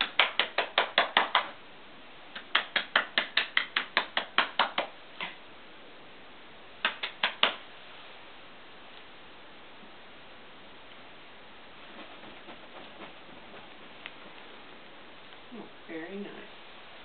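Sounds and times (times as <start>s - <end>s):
hands clapping quickly: 0.0s - 1.6s, 2.3s - 5.4s, 6.8s - 7.6s.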